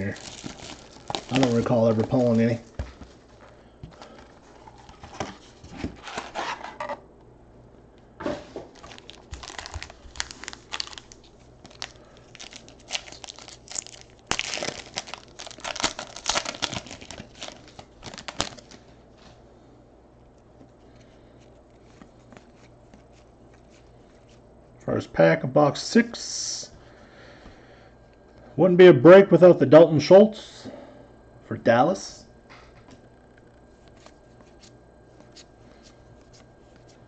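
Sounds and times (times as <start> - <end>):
foil wrappers crinkling and tearing: 0.0 - 2.8, 8.7 - 19.0.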